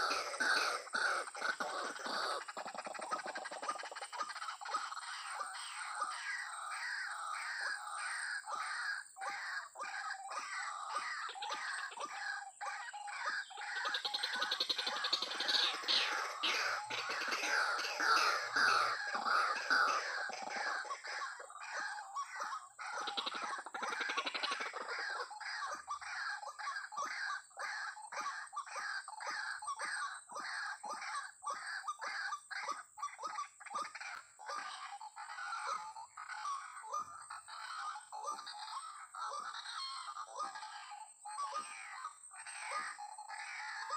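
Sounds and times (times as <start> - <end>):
waterhen harsh call: 0.0 - 2.5, 15.0 - 20.3
waterhen calling: 0.0 - 8.2, 10.8 - 25.7.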